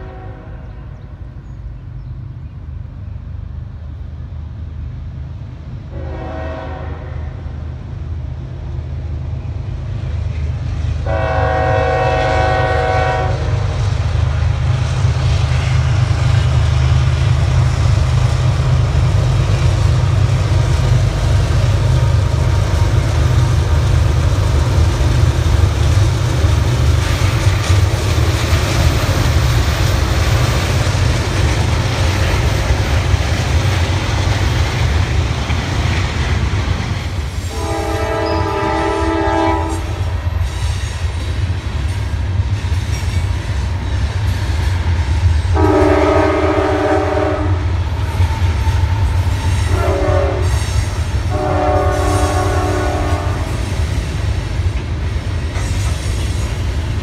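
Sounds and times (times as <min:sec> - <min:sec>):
locomotive air horn blasts: 0:00.0 - 0:00.9, 0:05.9 - 0:07.5, 0:11.0 - 0:13.8, 0:37.4 - 0:40.3, 0:45.5 - 0:47.7, 0:49.6 - 0:53.6
freight train rumbling: 0:00.0 - 0:57.0
wheels clattering on rails: 0:15.4 - 0:37.6, 0:40.0 - 0:45.4.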